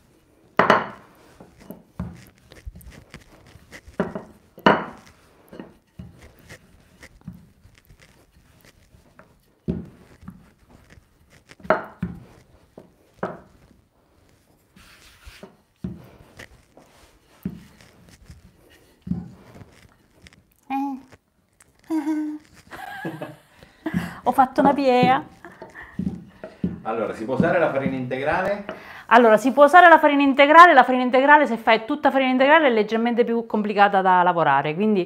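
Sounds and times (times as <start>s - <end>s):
soft rolling of dough: 0.0s - 29.9s
rolling pin knocks and thuds: 9.6s - 12.4s, 24.0s - 28.1s.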